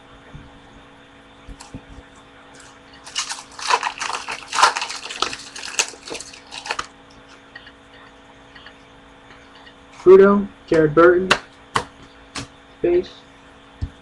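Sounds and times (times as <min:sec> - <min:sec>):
wrapper being torn and crinkled: 0:02.6 - 0:06.9.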